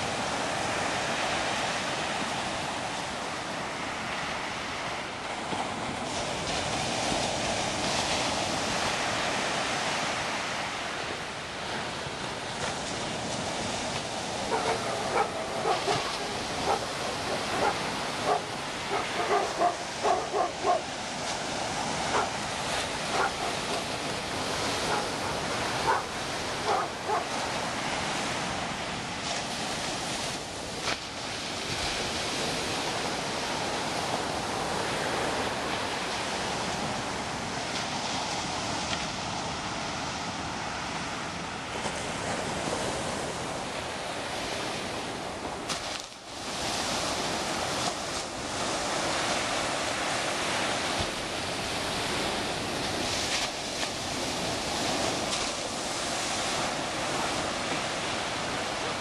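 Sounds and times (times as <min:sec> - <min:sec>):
ocean waves breaking: 0:00.0 - 0:59.0
dog barking: 0:14.5 - 0:20.9, 0:22.1 - 0:22.4, 0:23.1 - 0:23.9, 0:24.8 - 0:27.3.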